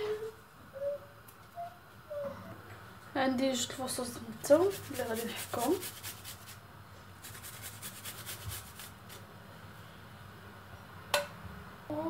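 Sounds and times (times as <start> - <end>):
garlic scraping on metal grater: 4.4 - 6.6.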